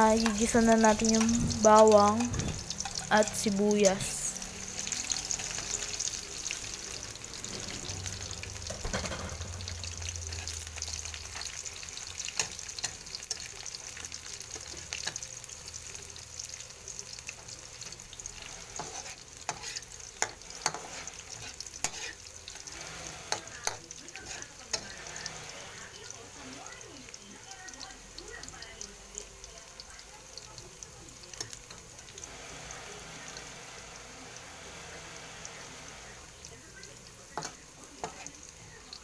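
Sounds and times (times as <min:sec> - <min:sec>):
garlic and onion sizzling in oil: 0:00.0 - 0:39.0
spatula scraping a wok: 0:00.2 - 0:03.5, 0:04.4 - 0:15.2, 0:17.4 - 0:26.8, 0:37.4 - 0:38.4.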